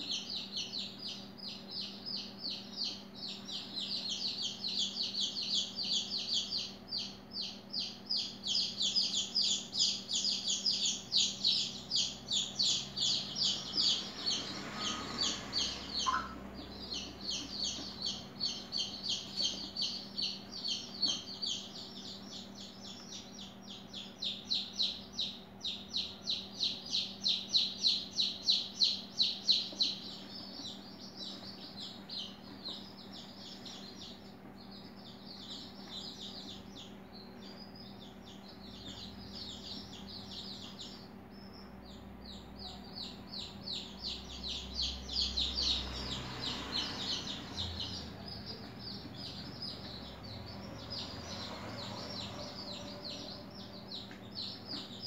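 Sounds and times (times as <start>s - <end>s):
bird chirping rapidly: 0.0s - 55.0s.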